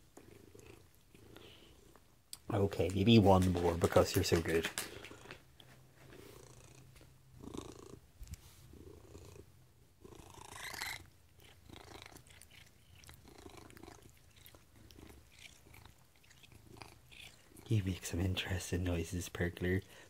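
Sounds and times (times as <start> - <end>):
cat purring: 0.0 - 2.0, 6.0 - 19.9.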